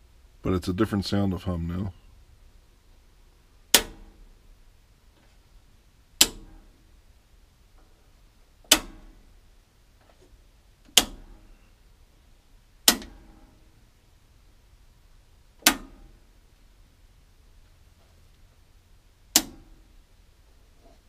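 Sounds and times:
faint low hum: 0.0 - 21.0
circuit breaker snaps: 3.7 - 4.2, 6.2 - 6.7, 8.6 - 9.2, 10.9 - 11.4, 12.8 - 13.2, 15.6 - 16.1, 19.3 - 19.8.

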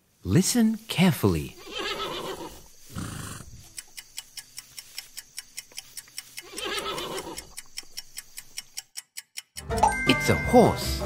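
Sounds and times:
horse whinnying: 1.6 - 3.5, 6.4 - 7.5
clock ticking: 3.6 - 10.6.

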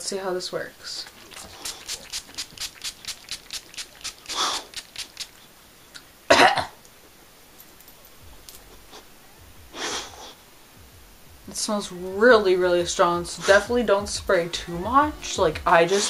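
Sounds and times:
spray bottle hissing puffs: 1.0 - 5.5
person coughing: 6.3 - 6.8.

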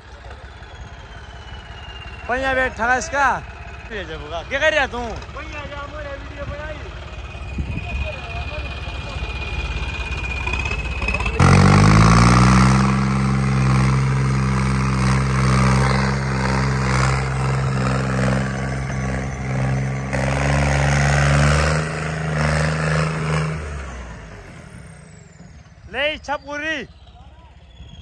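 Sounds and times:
tractor diesel engine revving: 0.0 - 28.0.

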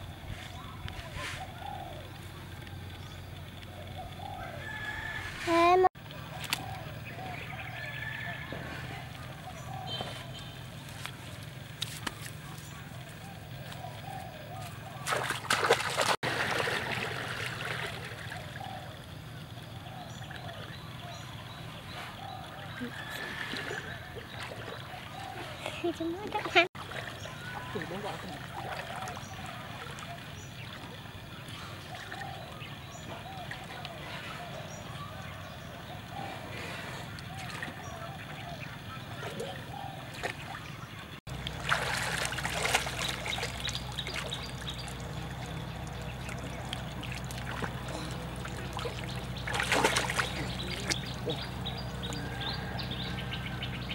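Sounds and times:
water sloshing: 8.8 - 19.5, 22.2 - 53.1
people splashing into river: 14.9 - 18.6, 40.1 - 51.5.

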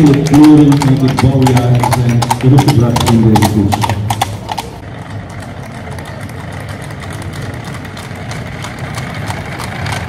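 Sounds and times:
carriage wheels rumbling on cobblestones: 0.0 - 10.0
horse hooves clip-clopping: 0.0 - 10.0.

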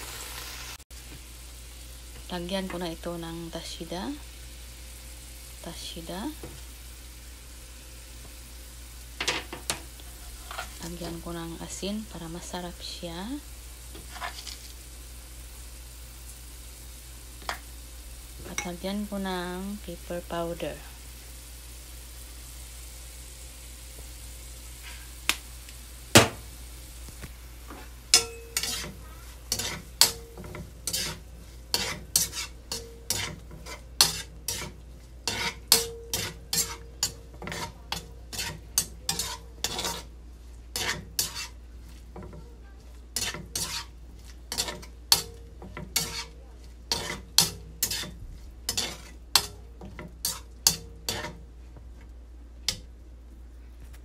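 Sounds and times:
meat sizzling in oil: 0.0 - 51.7
spatula scraping and striking pan: 9.2 - 11.3, 13.9 - 14.7, 27.7 - 42.4, 43.1 - 51.5.

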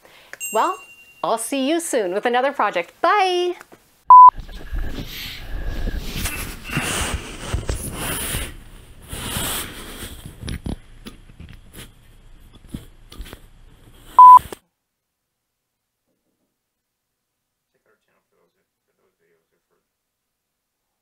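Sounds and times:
loud electronic beep: 4.1 - 4.3, 14.2 - 14.4
rustling and handling noises: 4.6 - 14.2.

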